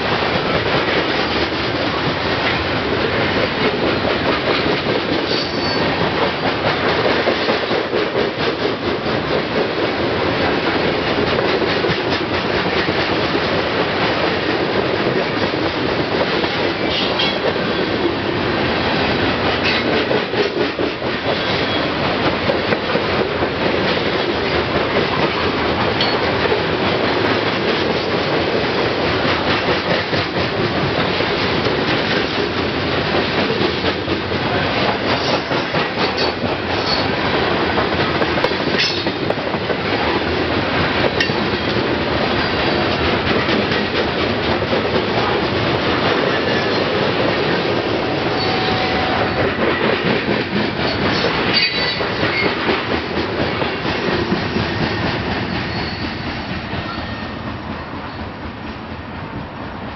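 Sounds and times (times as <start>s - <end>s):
freight train rumbling past: 0.0s - 59.9s
high wheel squeals: 48.3s - 49.4s, 55.7s - 56.2s.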